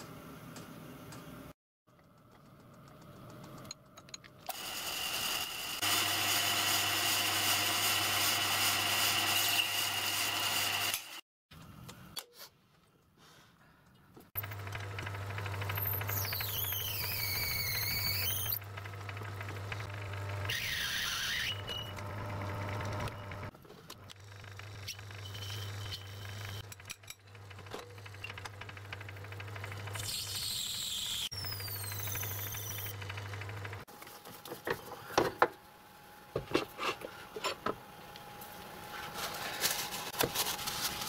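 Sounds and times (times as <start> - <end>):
high cutting squeal: 15.8 - 18.6, 20.4 - 22.0.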